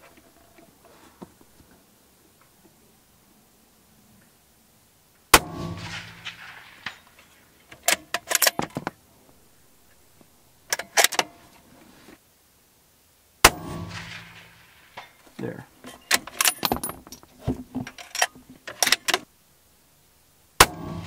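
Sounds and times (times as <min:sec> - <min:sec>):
rifle shots with echoing tail: 0:05.4 - 0:07.2, 0:13.4 - 0:15.2, 0:20.6 - 0:21.0.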